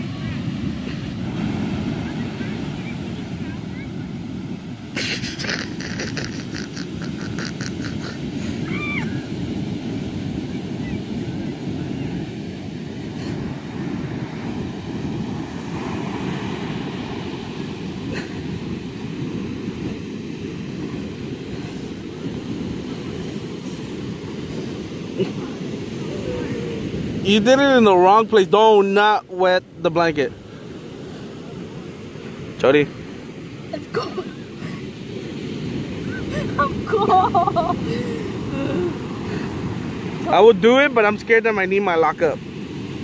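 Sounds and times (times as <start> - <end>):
ocean surf breaking: 0.0 - 43.0
wind rumble on microphone: 5.8 - 27.5.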